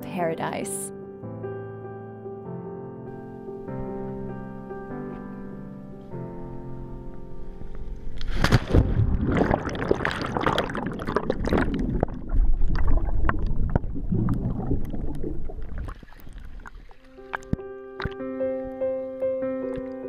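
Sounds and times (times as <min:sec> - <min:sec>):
underwater bubbles rushing: 0:08.2 - 0:18.2
water splash: 0:08.2 - 0:18.2.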